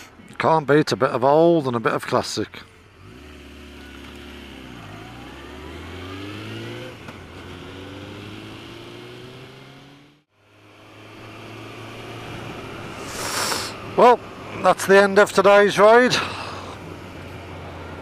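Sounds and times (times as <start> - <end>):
motorcycle engine accelerating: 2.8 - 14.7.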